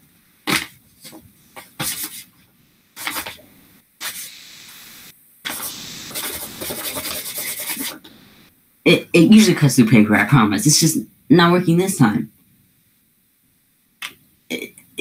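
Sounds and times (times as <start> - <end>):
blade scraping paper: 3.0 - 3.4, 5.5 - 8.0.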